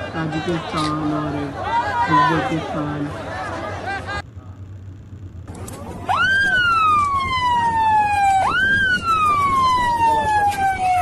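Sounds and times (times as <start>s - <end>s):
noisy background: 0.0s - 11.0s
siren wailing: 6.0s - 11.0s.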